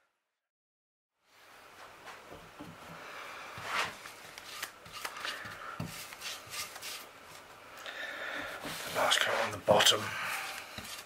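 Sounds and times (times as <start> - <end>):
paintbrush swishing on wood: 4.9 - 7.1, 8.6 - 11.0.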